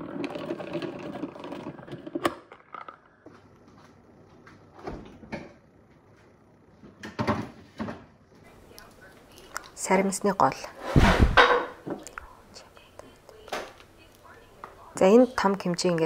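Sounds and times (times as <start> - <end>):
salad spinner whirring: 0.0 - 2.8.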